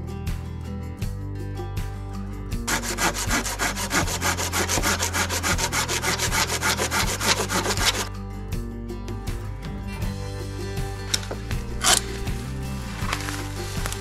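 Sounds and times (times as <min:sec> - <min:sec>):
handsaw cutting log: 0:02.7 - 0:08.1.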